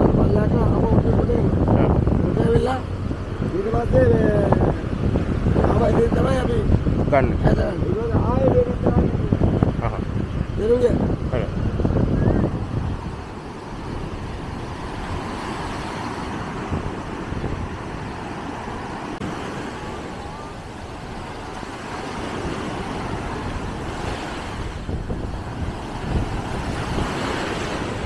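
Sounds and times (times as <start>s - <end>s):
surf breaking on beach: 8.5s - 28.0s.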